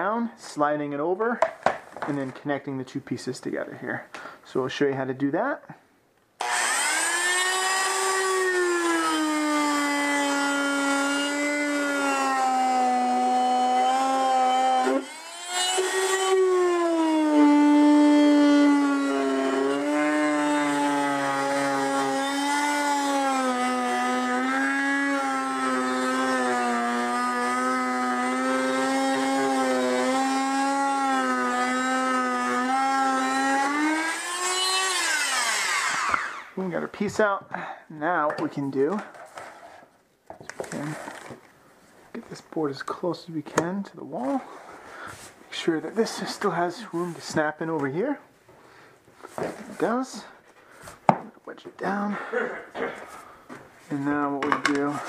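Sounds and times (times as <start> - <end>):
oscillating multi-tool buzzing: 6.4 - 36.6.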